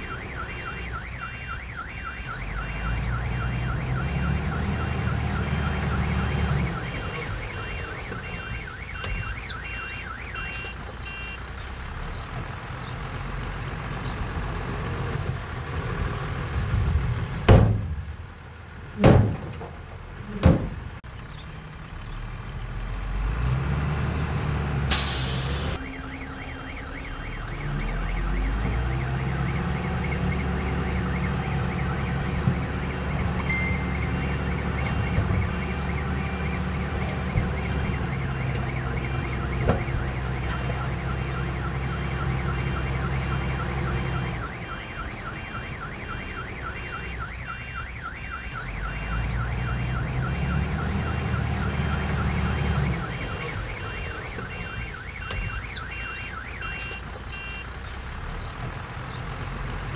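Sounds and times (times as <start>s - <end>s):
diesel engine working hard: 57.2s - 59.9s.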